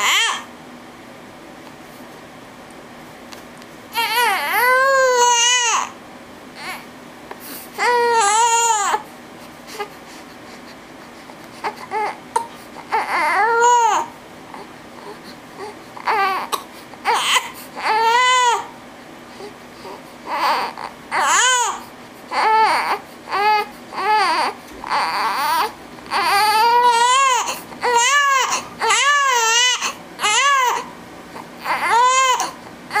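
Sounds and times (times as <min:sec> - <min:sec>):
newborn baby crying: 0:00.0 - 0:00.5, 0:03.9 - 0:06.0, 0:06.6 - 0:06.9, 0:07.8 - 0:09.1, 0:11.6 - 0:18.7, 0:19.4 - 0:33.0.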